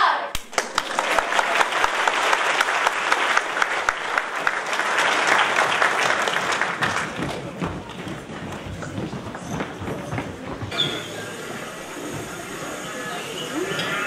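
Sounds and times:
audience applauding: 0.3s - 9.5s.

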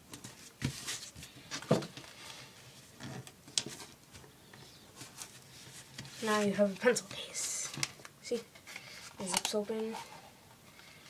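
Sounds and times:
tape and plastic crinkling: 5.0s - 10.1s.

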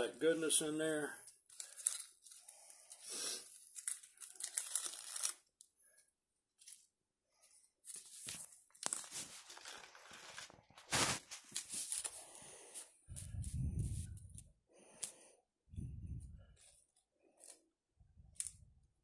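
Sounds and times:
lettuce leaves crinkling: 1.5s - 5.6s, 7.9s - 12.2s.

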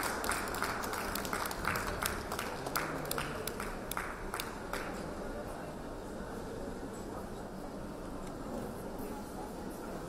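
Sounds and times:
audience applauding: 0.0s - 4.9s.

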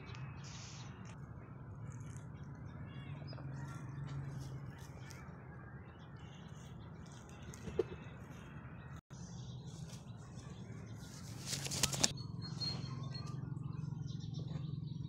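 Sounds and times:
wing feathers rustling and flapping: 11.0s - 12.1s.

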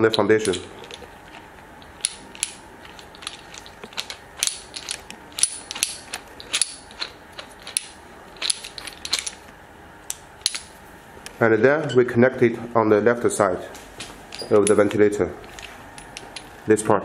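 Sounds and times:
sharp irregular clicks of arm turning: 0.1s - 11.4s.

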